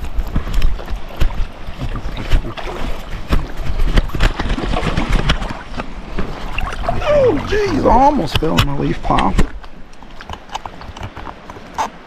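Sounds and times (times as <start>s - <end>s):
microphone handling noise: 0.0s - 9.8s
water sloshing and splashing: 0.0s - 12.0s
wind rumble on microphone: 0.0s - 12.0s.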